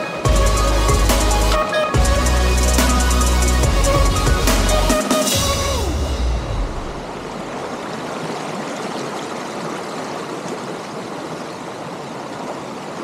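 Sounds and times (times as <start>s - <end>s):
stream rushing over rocks: 5.3s - 13.0s.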